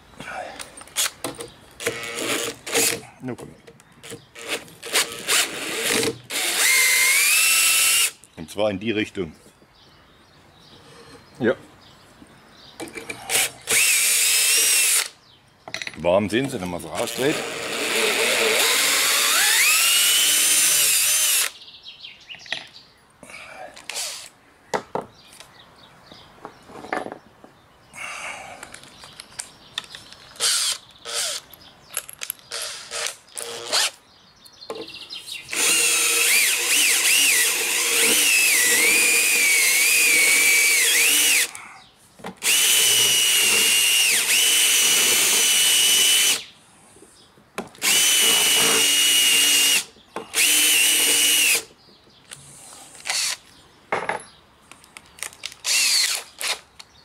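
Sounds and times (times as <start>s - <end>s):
cordless drill cutting wood: 1.8s - 3.0s, 4.0s - 8.2s, 13.3s - 15.2s, 17.0s - 21.6s, 23.9s - 24.3s, 30.4s - 31.4s, 32.5s - 34.0s, 35.5s - 41.5s, 42.4s - 46.5s, 47.8s - 51.7s, 53.0s - 53.4s, 55.6s - 56.6s.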